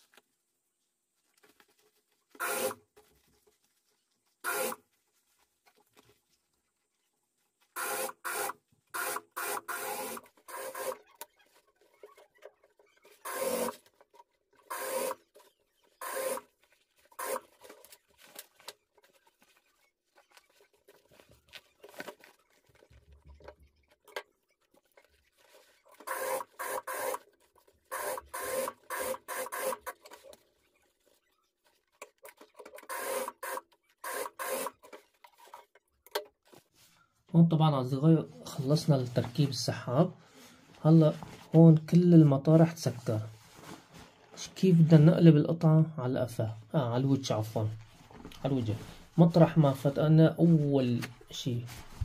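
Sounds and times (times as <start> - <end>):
cloth rubbing and rustling: 0.0 - 7.7, 38.4 - 41.8, 42.5 - 44.8, 47.4 - 52.0
sewing machine stitching: 2.4 - 2.8, 4.4 - 4.8, 7.8 - 16.5, 17.1 - 17.9, 25.8 - 30.3, 32.0 - 35.6.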